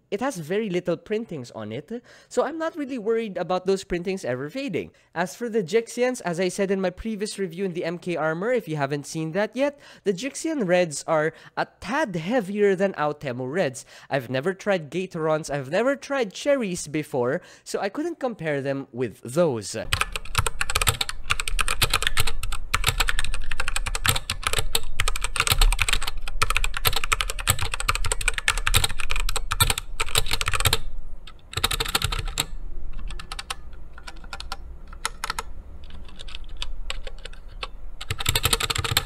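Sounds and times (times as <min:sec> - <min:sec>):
mechanical keyboard typing: 0:19.9 - 0:39.0.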